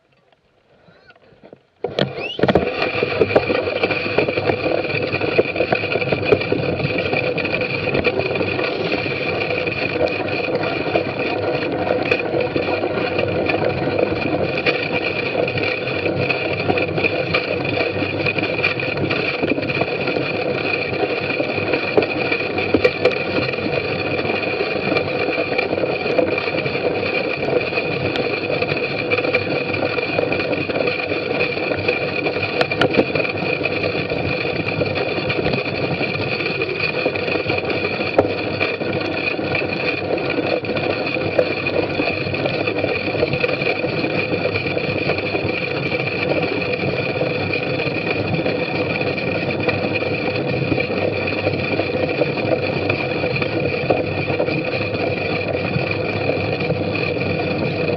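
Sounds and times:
bicycle tyres and chain rattling: 0.0 - 57.9
bicycle knocking over bumps: 1.4 - 45.6.

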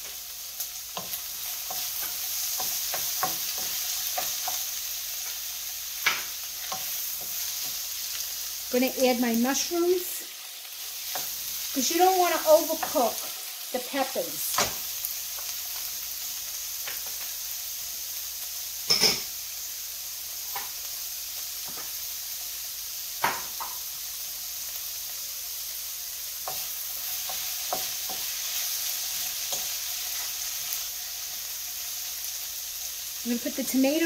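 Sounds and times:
vegetables sizzling in a frying pan: 0.0 - 34.0
wooden spoon tapping a pan: 1.0 - 4.6, 6.0 - 7.8, 23.2 - 23.8.

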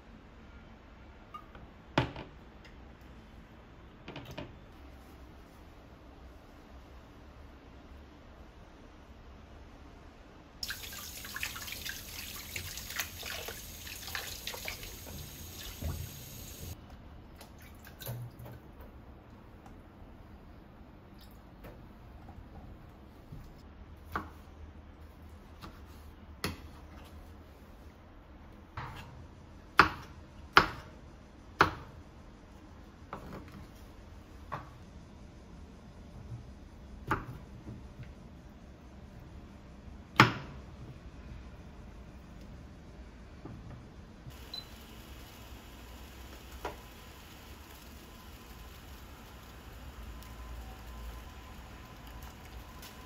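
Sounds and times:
tap water running into basin: 10.6 - 16.8.

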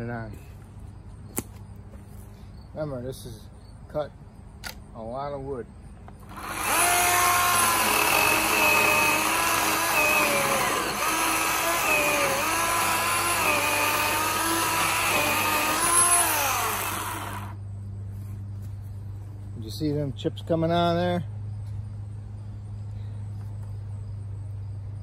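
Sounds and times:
electric chainsaw cutting log: 6.2 - 17.6.

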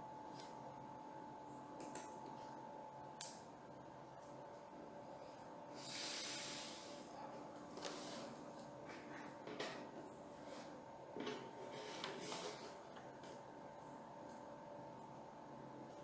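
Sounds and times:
faint electrical hum: 0.0 - 16.0
soft breathy hiss: 5.7 - 7.2.

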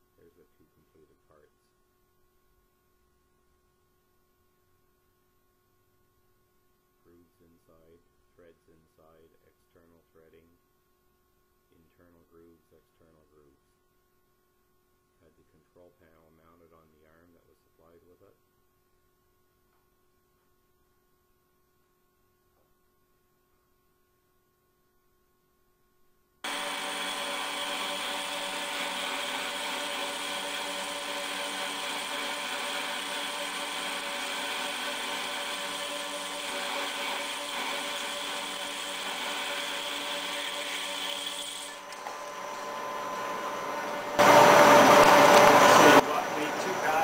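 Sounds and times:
metal lathe whining: 26.5 - 47.0.

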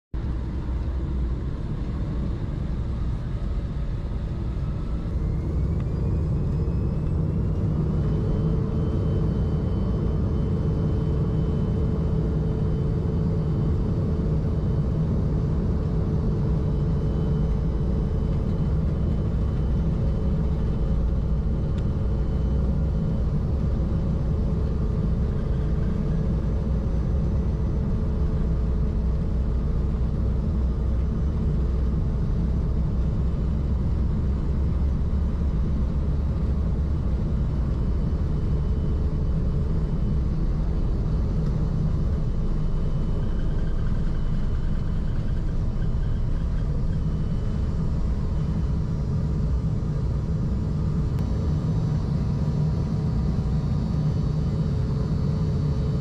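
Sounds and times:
jet engines whining: 0.2 - 30.0
jet engine cabin rumble: 0.2 - 56.0.

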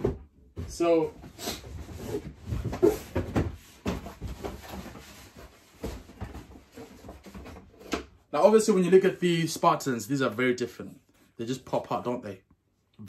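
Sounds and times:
objects knocking and scraping: 0.0 - 8.2.

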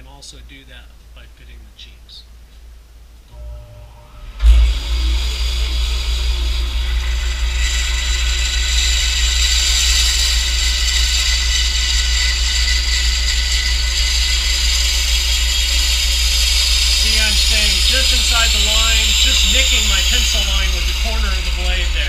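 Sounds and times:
bandsaw motor running: 4.1 - 22.0
bandsaw blade cutting wood: 4.6 - 22.0.

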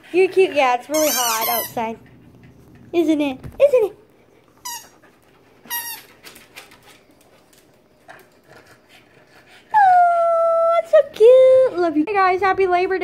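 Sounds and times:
rubber toy squeaking: 0.9 - 1.8, 4.6 - 4.9, 5.7 - 6.1.

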